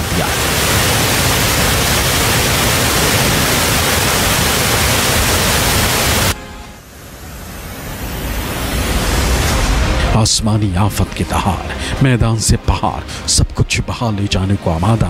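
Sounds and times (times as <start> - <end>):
water rushing over weir: 0.0 - 10.1.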